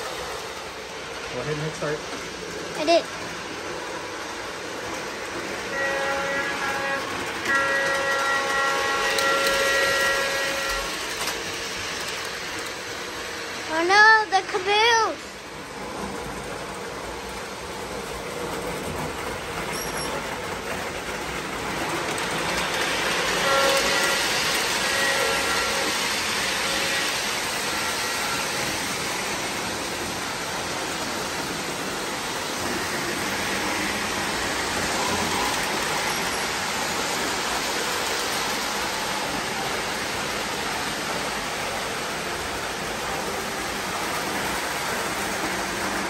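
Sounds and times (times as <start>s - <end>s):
model trains rolling rumble: 0.0s - 46.0s.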